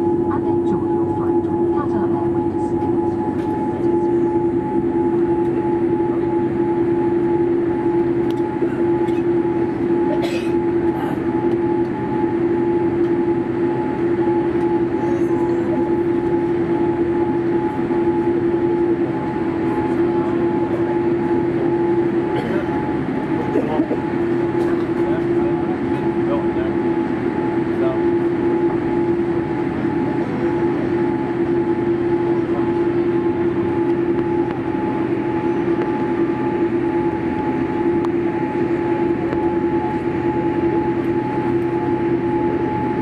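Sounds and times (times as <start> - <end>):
airliner cabin hum: 0.0 - 43.0.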